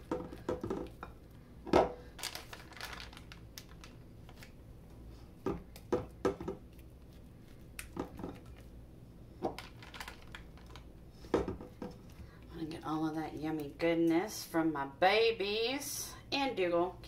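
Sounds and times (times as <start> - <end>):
plastic bag crinkling: 2.0 - 4.5, 9.6 - 10.9.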